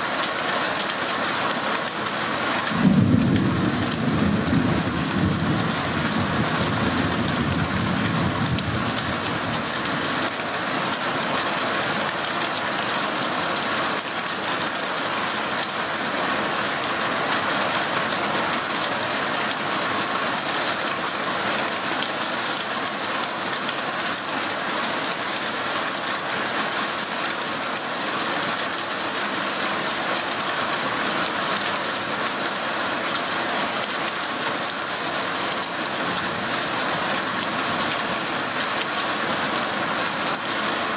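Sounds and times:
heavy rain on a roof: 0.0 - 40.9
low thunder rumble: 2.7 - 9.7.

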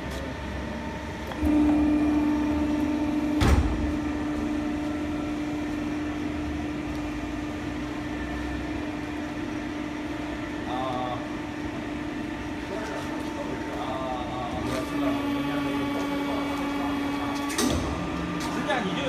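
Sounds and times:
hydraulic pump humming and whining: 0.0 - 19.0
press clunk: 2.8 - 4.2.

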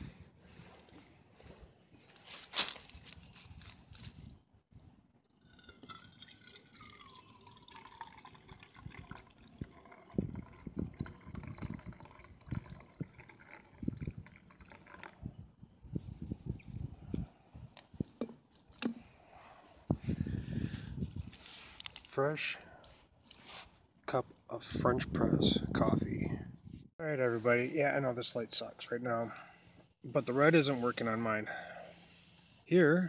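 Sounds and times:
liquid pouring with ringing note: 5.4 - 15.2.

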